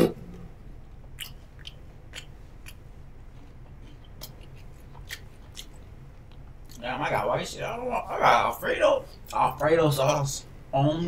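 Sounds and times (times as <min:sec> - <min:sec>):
person chewing: 0:01.0 - 0:06.8.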